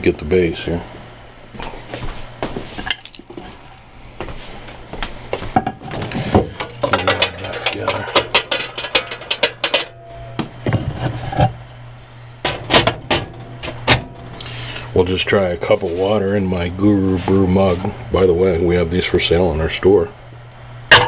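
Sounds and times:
glass plate clinking and rattling: 5.7 - 10.1.

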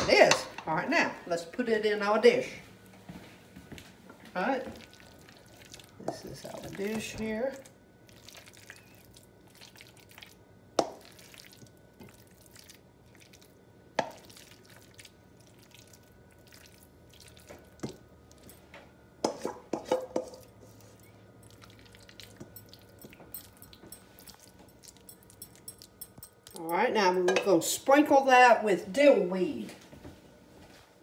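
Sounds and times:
utensil clinking against bowl: 22.2 - 27.6.

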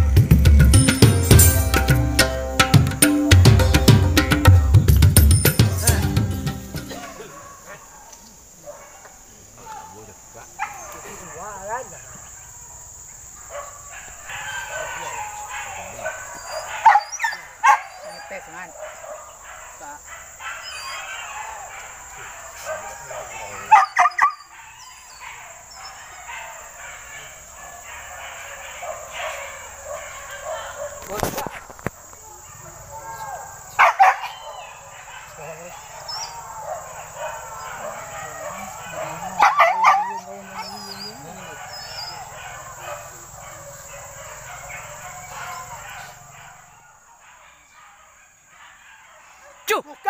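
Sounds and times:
distant animal calls: 2.9 - 50.0
dogs whining and yelping: 13.4 - 31.1, 32.2 - 50.0.

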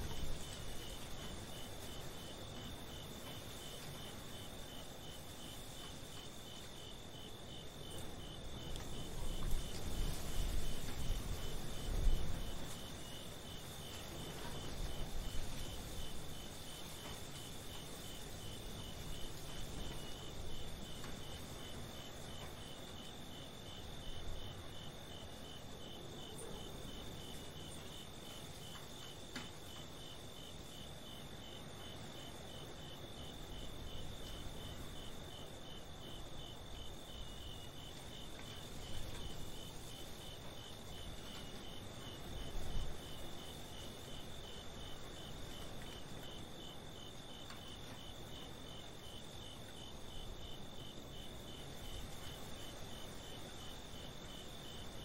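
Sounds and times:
pulsed cricket chirp: 0.0 - 55.0.

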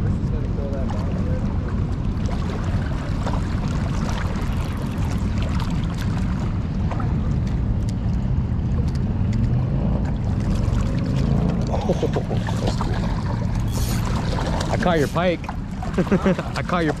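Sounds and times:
turbulent river water rushing: 1.0 - 7.2, 10.3 - 17.0.

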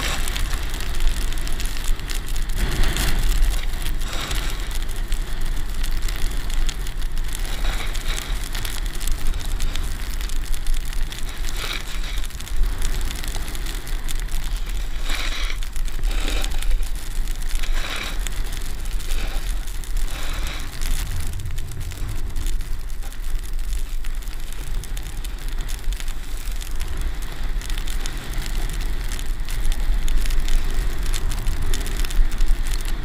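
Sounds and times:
wind rumbling on microphone: 0.0 - 33.0
edges scraping across snow: 2.6 - 4.8, 7.4 - 8.8, 11.1 - 12.3, 14.4 - 17.0, 17.6 - 22.6.

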